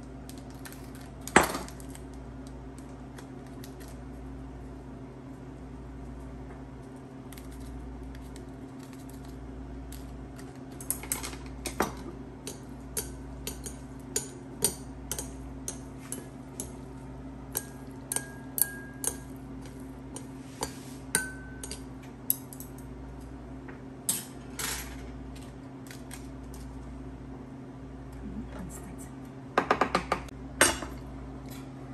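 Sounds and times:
chopsticks clinking ceramic bowls: 17.6s - 22.7s.

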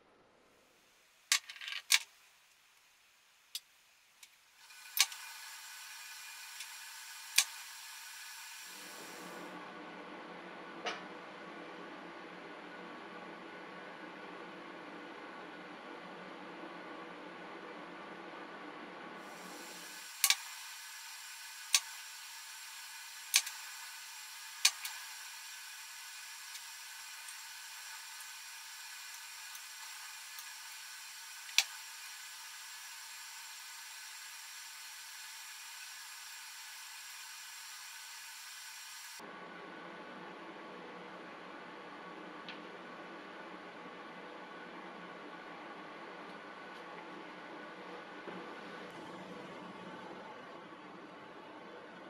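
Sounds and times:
faint steady hiss: 0.0s - 9.5s
steady hiss: 19.2s - 39.2s.

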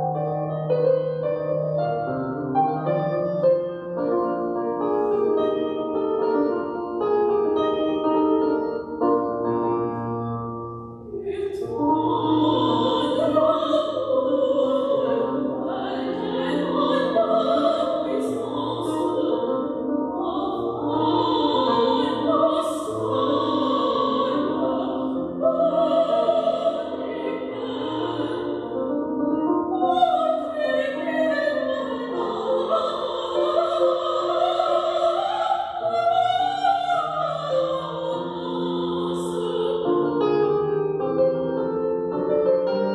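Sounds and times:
electronic keyboard piano sound: 0.0s - 42.9s
woman singing operatically: 11.1s - 28.8s, 29.8s - 39.9s.

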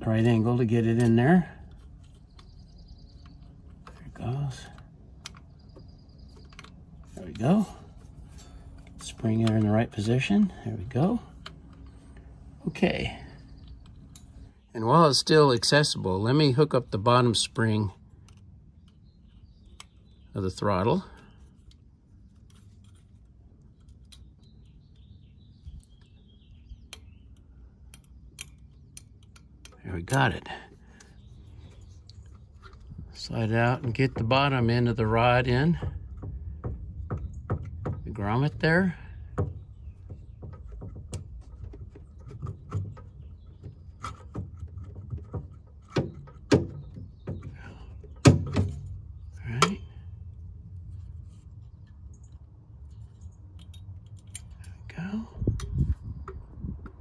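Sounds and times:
bird chirping: 0.0s - 22.8s, 23.4s - 53.8s
metal clicks of throttle linkage: 0.2s - 12.3s, 26.8s - 49.9s, 51.8s - 54.8s
small metallic clicks: 13.6s - 14.6s, 18.1s - 20.3s, 21.2s - 33.0s, 40.4s - 54.9s.

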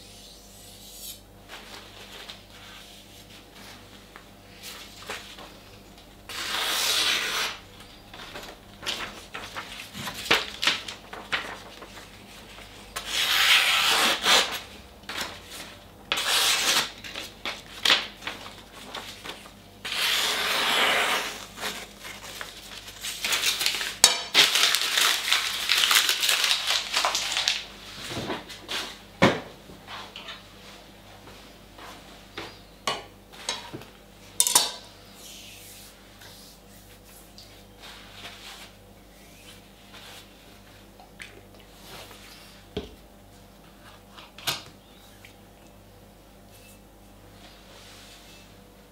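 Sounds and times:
knife slicing paper: 6.3s - 7.6s, 13.0s - 14.6s, 19.8s - 22.4s
paper rustling: 8.1s - 12.8s, 15.1s - 19.6s.

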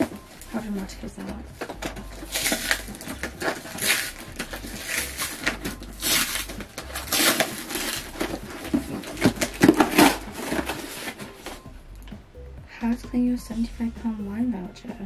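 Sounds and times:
crackling: 0.0s - 12.2s
cardboard flaps torn open: 1.6s - 11.6s
packing tape peeling: 1.6s - 11.6s.

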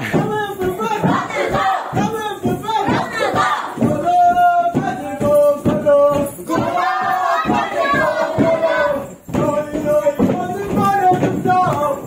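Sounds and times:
group chanting in unison: 1.0s - 2.1s, 2.8s - 3.8s, 6.5s - 9.1s.

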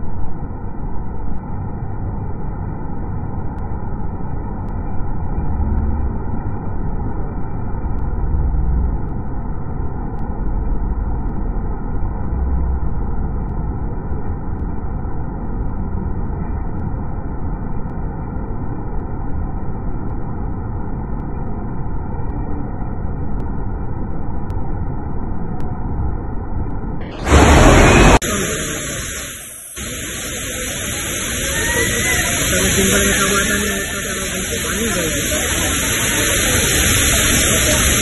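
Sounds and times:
low rumble: 0.0s - 38.0s
large waterfall roaring: 27.0s - 38.0s.

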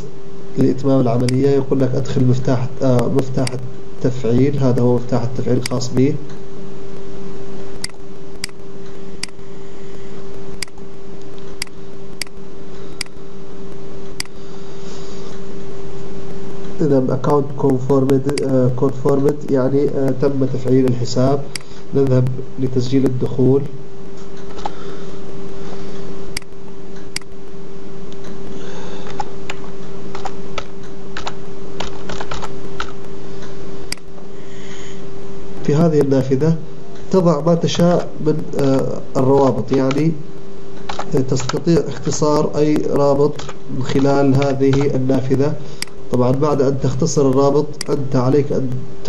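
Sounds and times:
electrical hum and hiss: 0.0s - 49.0s
computer mouse clicking: 29.0s - 33.0s, 40.8s - 42.1s, 43.3s - 45.0s.

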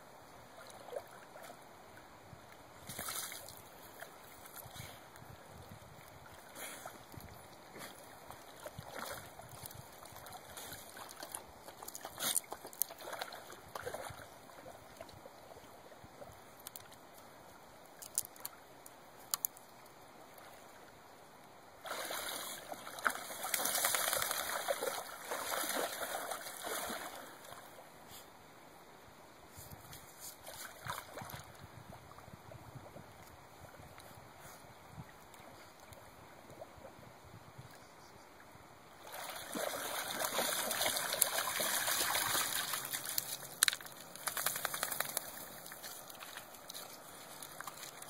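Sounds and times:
dog splashing in shallow water: 6.2s - 15.1s, 21.8s - 27.8s, 30.4s - 31.6s, 39.0s - 48.0s.

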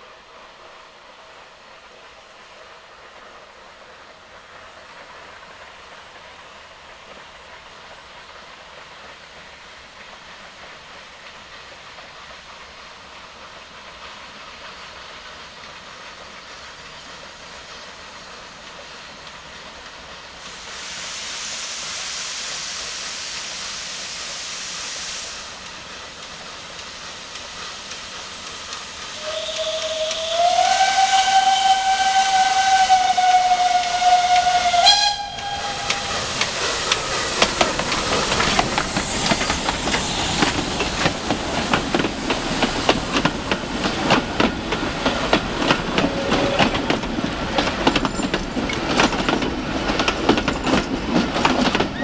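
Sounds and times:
steam train hiss and rumble: 0.0s - 52.0s
steam locomotive whistle: 29.1s - 36.6s.

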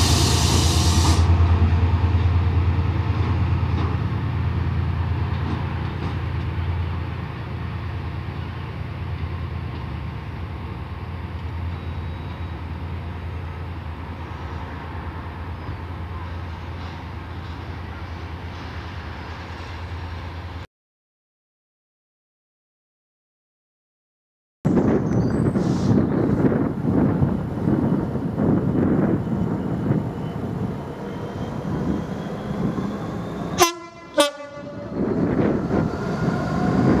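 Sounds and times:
air hiss: 0.0s - 1.3s
diesel locomotive engine throbbing: 0.0s - 20.6s, 24.7s - 37.0s.

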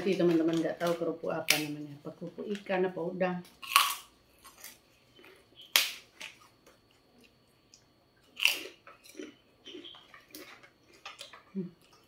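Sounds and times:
cracker crunching: 3.5s - 12.0s
quiet chewing crunches: 3.6s - 12.0s.

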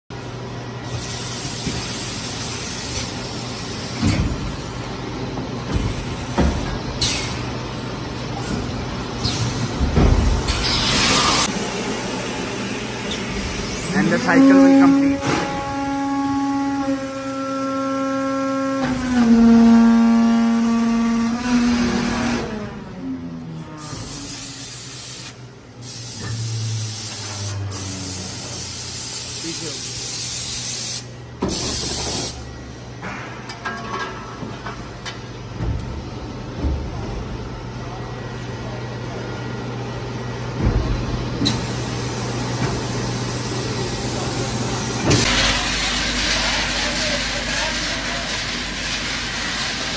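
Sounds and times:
molding machine hum: 0.2s - 24.1s.

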